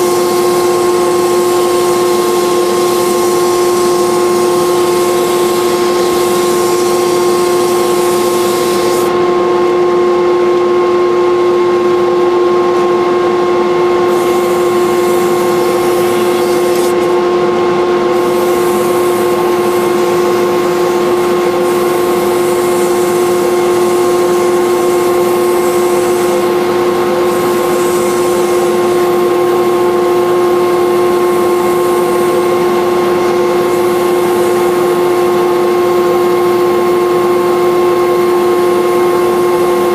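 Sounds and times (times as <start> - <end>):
steel tool cutting wood: 0.0 - 9.1, 14.1 - 17.2, 18.1 - 30.2, 30.8 - 35.5
wood lathe whining: 0.0 - 9.2, 13.9 - 17.3, 17.9 - 37.8.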